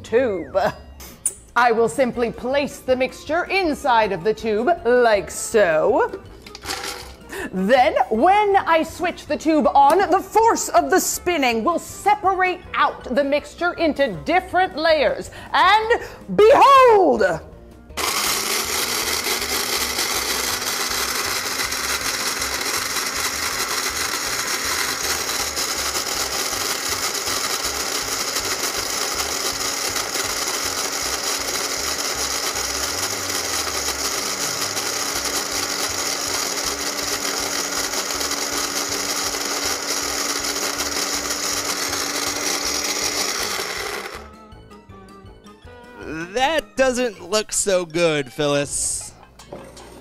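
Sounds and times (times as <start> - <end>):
blender running: 6.1 - 7.4, 17.9 - 44.5.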